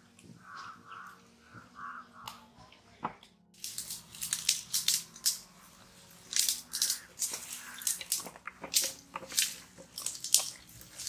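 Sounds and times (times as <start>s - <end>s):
hands squelching paste onto chicken: 6.3s - 11.0s.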